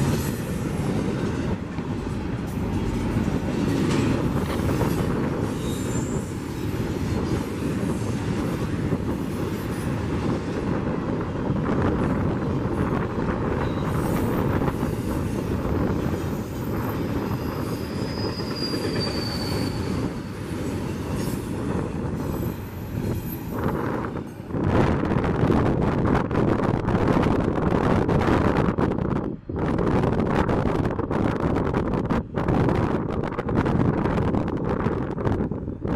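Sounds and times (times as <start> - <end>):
train wheels rumbling on rail: 0.0 - 35.9
high wheel squeals: 4.6 - 6.8, 16.2 - 23.8.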